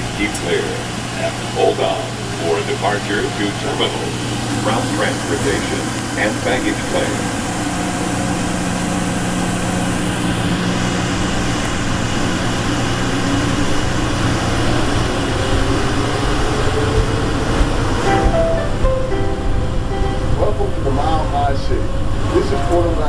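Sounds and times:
train running low hum: 0.0s - 23.0s.

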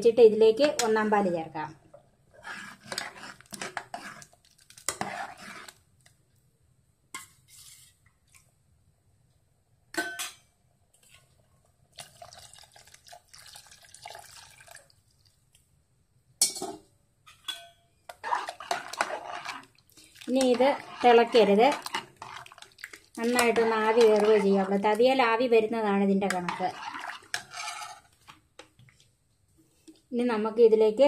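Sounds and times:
metal ladle stirring stew: 2.3s - 5.8s, 17.4s - 25.4s, 26.1s - 28.9s
liquid pouring and splashing: 11.9s - 15.4s, 18.2s - 24.9s.

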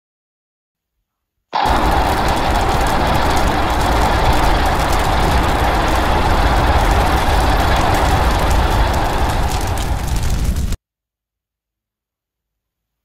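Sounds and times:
deep rumble: 1.6s - 10.8s
loud rushing noise: 1.6s - 10.8s.

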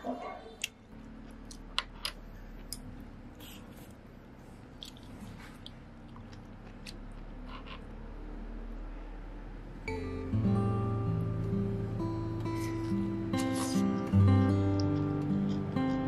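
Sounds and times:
quiet chewing: 0.6s - 7.3s, 12.5s - 16.0s.

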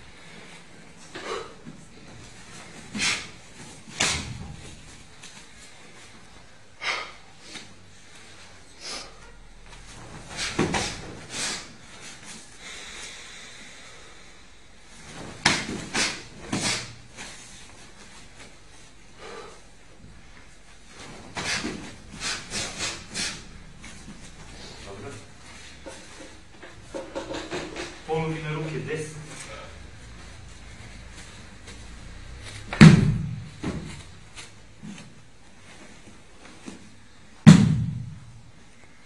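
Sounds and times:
bodies thudding on a mat: 9.8s - 12.2s, 15.0s - 18.5s, 32.4s - 35.2s, 35.8s - 38.5s.

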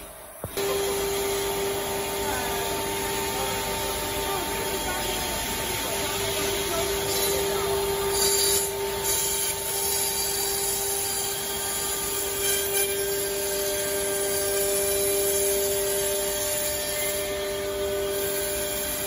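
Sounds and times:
cnc router spindle whine: 0.0s - 19.0s.

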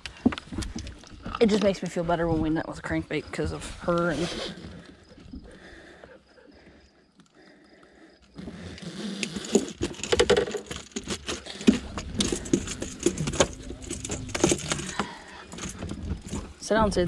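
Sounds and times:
treble hooks jangling: 9.2s - 16.8s.

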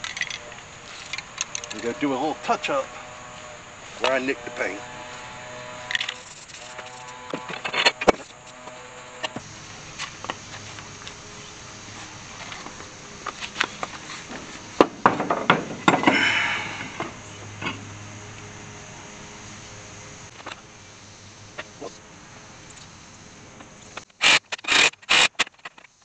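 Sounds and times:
wheel knocking and scraping on hub: 0.0s - 18.5s.

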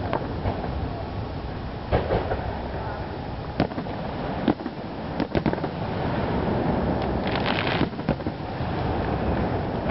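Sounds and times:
background noise: 0.0s - 9.9s
fireworks crackling: 0.0s - 9.9s
fireworks bangs: 1.9s - 2.8s, 3.5s - 9.9s.

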